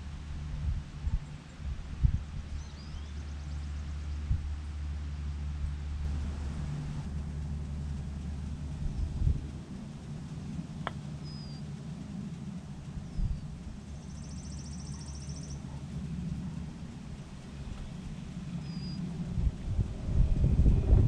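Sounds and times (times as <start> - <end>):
wind rumble on microphone: 0.0 - 21.0
rapid bird trill: 10.2 - 11.7, 12.9 - 15.8, 18.5 - 19.1
bird chirps: 11.2 - 11.6, 13.0 - 15.8, 18.6 - 19.0.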